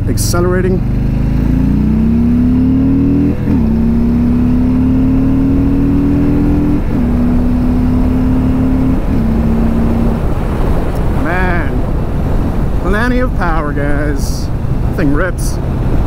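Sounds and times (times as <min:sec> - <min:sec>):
motorcycle accelerating through gears: 0:00.0 - 0:12.8.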